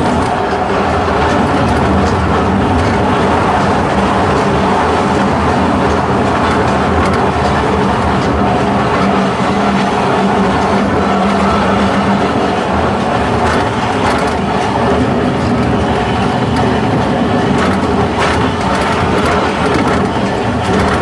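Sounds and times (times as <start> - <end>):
clicks and rattles: 0.0 - 8.6, 13.3 - 16.8, 17.4 - 21.0
tram wheels rumbling on rails: 0.0 - 21.0.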